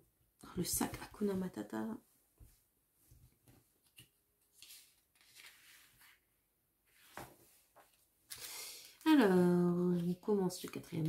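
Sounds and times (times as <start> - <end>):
faint paper rustles: 3.1 - 9.2.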